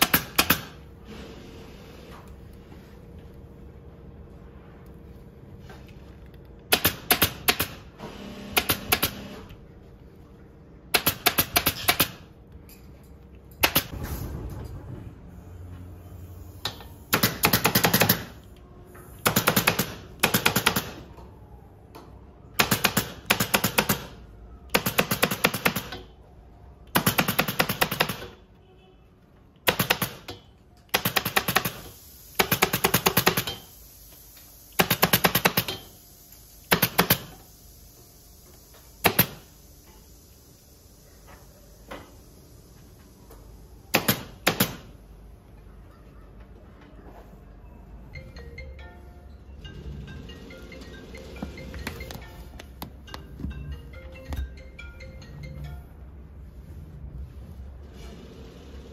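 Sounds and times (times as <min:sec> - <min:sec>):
pneumatic staple gun firing: 0:00.0 - 0:00.8, 0:06.7 - 0:07.8, 0:08.5 - 0:09.4, 0:10.9 - 0:12.2, 0:16.6 - 0:18.4, 0:19.2 - 0:21.0, 0:29.7 - 0:33.7, 0:34.7 - 0:35.9, 0:36.7 - 0:37.4, 0:39.0 - 0:39.5, 0:43.9 - 0:44.9.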